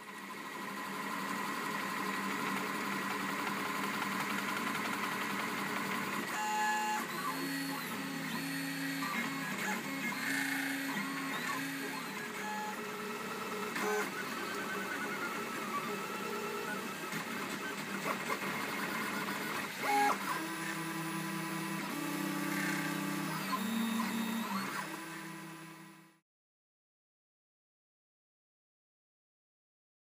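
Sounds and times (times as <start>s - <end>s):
stepper motors whining: 6.2s - 25.9s.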